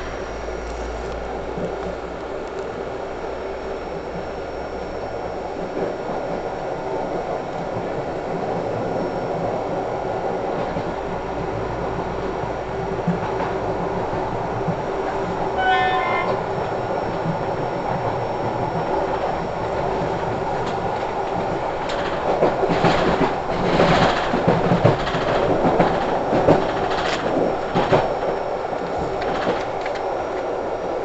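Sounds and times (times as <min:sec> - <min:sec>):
train rolling rumble: 0:00.0 - 0:31.0
wheels clicking over rail joints: 0:18.0 - 0:30.5.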